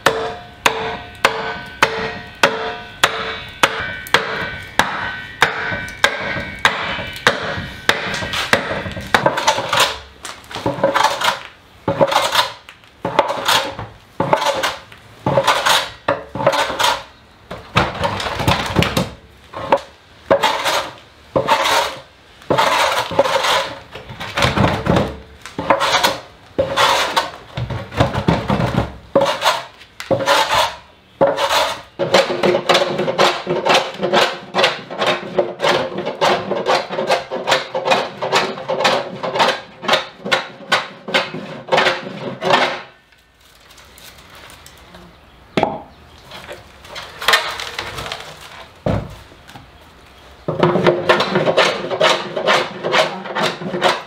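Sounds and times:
hammer striking iron hoops: 0:00.0 - 0:10.1, 0:10.7 - 0:43.0.

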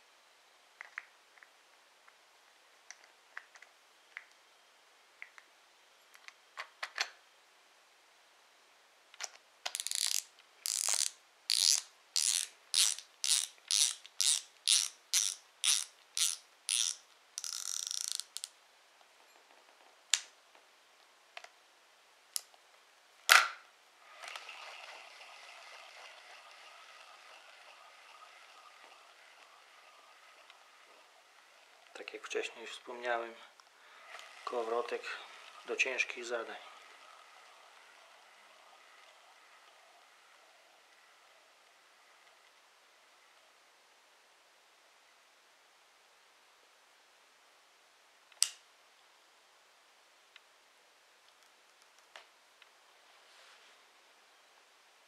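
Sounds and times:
fishing reel drag clicker ratcheting: 0:09.7 - 0:18.5
reel rotor whirring: 0:24.0 - 0:32.7, 0:33.8 - 0:43.5.

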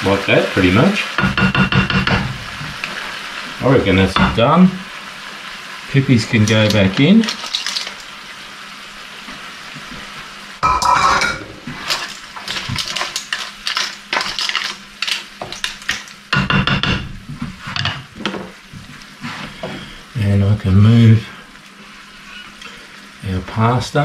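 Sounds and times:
sauce sizzling: 0:00.0 - 0:24.0
clam shells clattering in a pan: 0:06.4 - 0:08.2, 0:10.6 - 0:16.6.

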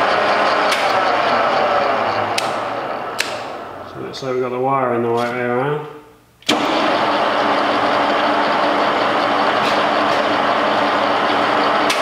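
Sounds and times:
milling machine motor whirring: 0:00.0 - 0:04.0, 0:06.5 - 0:12.0
gear whine: 0:00.0 - 0:04.2.

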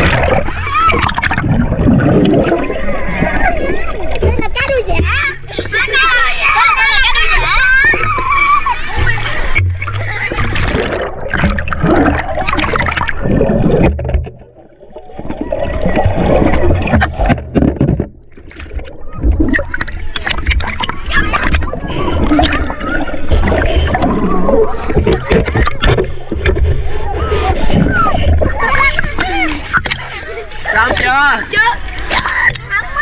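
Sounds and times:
children's voices: 0:00.0 - 0:13.4, 0:18.8 - 0:33.0
pool water splashing: 0:00.0 - 0:33.0
underwater bubbling: 0:00.0 - 0:33.0.

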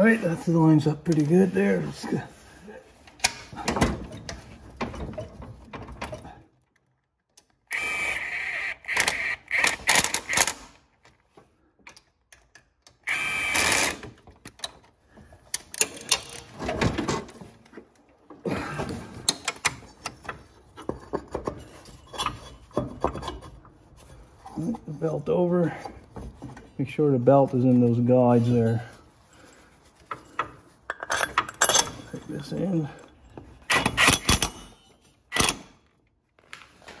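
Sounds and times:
cordless drill spinning: 0:07.7 - 0:10.5, 0:13.0 - 0:14.0
metal parts clattering: 0:30.2 - 0:35.6.

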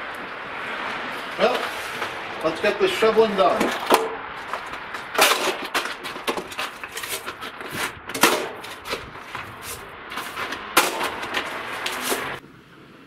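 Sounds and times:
snow shovel scraping concrete: 0:01.1 - 0:02.2, 0:03.5 - 0:12.4.

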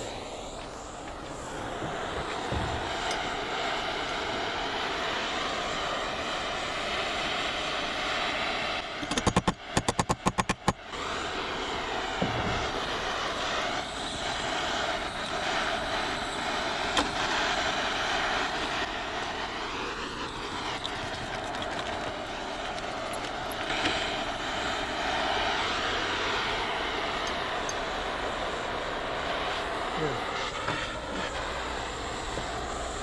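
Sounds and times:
torch flame roaring: 0:00.0 - 0:33.0
rattle of sharp clicks: 0:09.0 - 0:10.8, 0:20.7 - 0:24.0.

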